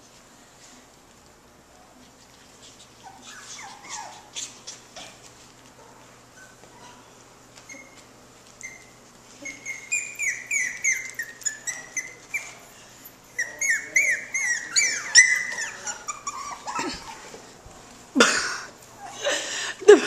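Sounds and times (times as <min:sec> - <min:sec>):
puppies yipping: 0:02.7 - 0:05.1, 0:07.6 - 0:12.7, 0:13.3 - 0:17.4.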